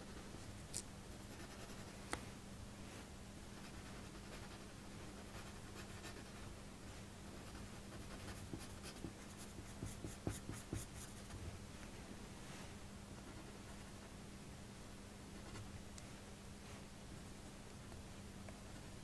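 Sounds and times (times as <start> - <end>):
faint hum: 0.0 - 19.0
pencil scratching on paper: 7.4 - 11.4.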